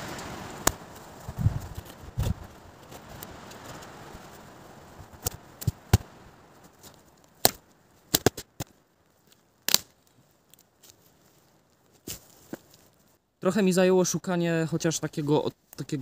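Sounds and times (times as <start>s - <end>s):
dead wood cracking: 0.1s - 4.4s, 5.1s - 13.1s.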